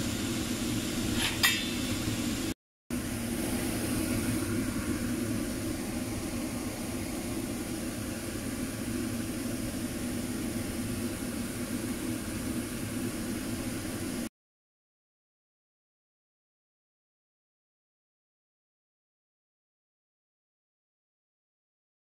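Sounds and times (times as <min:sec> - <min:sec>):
kitchen fan humming: 0:00.0 - 0:14.3.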